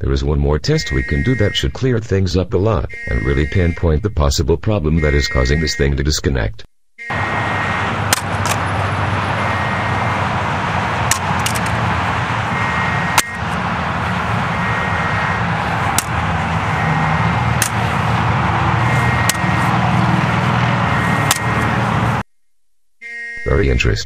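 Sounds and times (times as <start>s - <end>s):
highway traffic roar: 0.0s - 4.0s, 5.0s - 6.1s, 7.0s - 22.3s.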